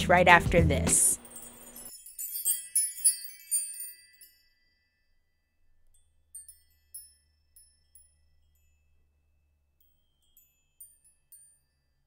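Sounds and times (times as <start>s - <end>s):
glittering chime notes: 1.2s - 8.8s.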